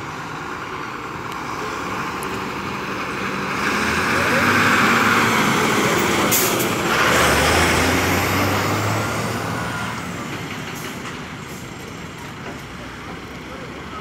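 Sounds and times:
truck diesel engine driving past: 0:00.0 - 0:14.0.

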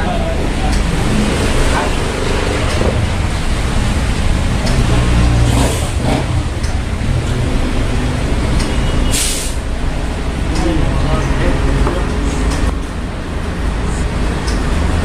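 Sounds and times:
short hiss: 0:09.1 - 0:09.6.

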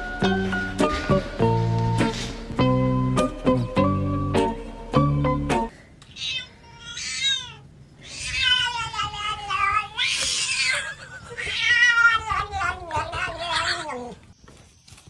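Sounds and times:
cat meowing: 0:06.1 - 0:14.2.

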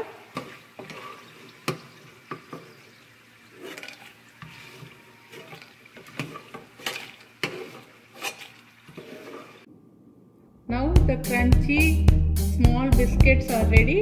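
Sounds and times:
metal spoon scraping frying pan: 0:00.3 - 0:02.8, 0:03.4 - 0:09.7.

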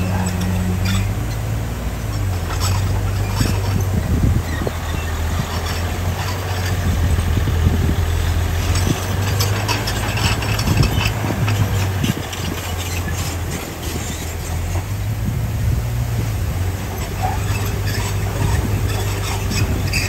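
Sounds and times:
tracks clanking and rattling: 0:00.0 - 0:15.2, 0:16.7 - 0:20.0
bulldozer diesel engine droning: 0:00.0 - 0:20.0.

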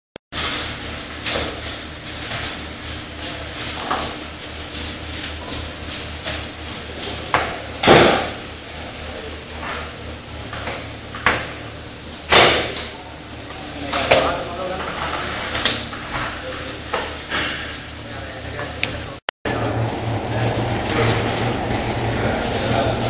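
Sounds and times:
low hum: 0:19.5 - 0:23.0.

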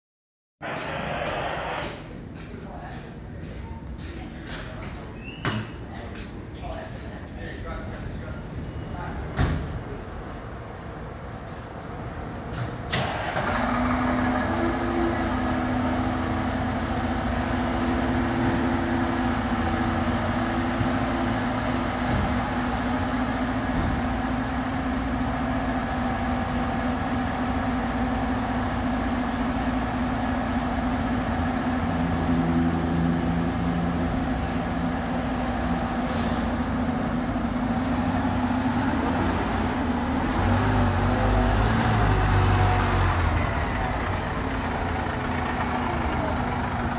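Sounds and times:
short sharp burst: 0:00.6 - 0:02.1
fire engine diesel idling: 0:00.6 - 0:04.6, 0:07.0 - 0:46.9.

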